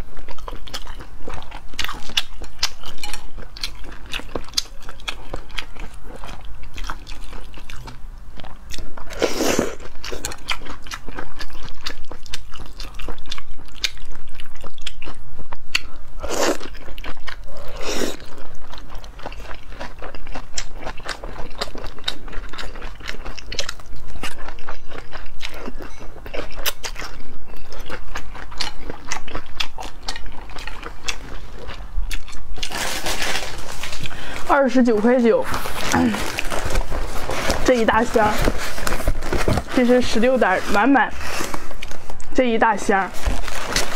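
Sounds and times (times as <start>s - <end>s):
chewing with wet mouth clicks: 0.2s - 9.1s, 9.8s - 32.7s.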